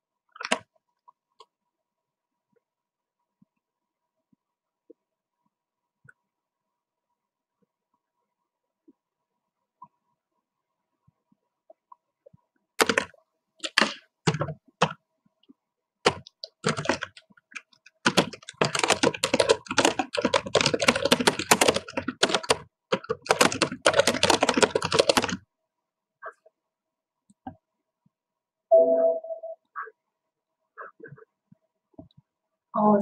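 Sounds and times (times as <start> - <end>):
typing on computer keyboard: 12.8 - 15.0, 16.0 - 25.4.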